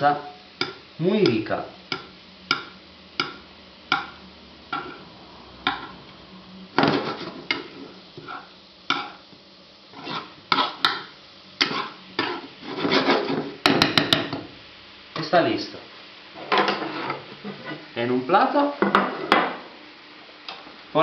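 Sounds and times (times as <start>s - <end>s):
metal spoon scraping frying pan: 6.8s - 9.2s, 9.9s - 11.0s, 11.6s - 13.6s, 16.4s - 17.9s.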